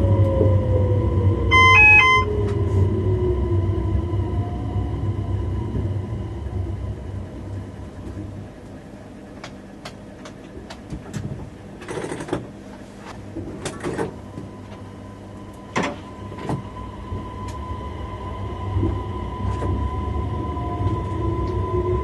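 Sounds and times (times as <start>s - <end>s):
low hum: 0.0s - 10.2s
steady high tone: 1.4s - 5.5s.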